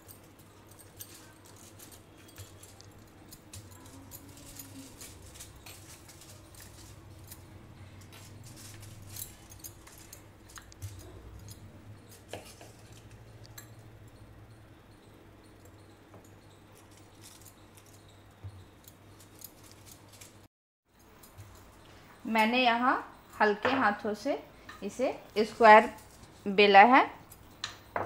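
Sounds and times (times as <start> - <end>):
foil crinkling: 3.7 - 7.2.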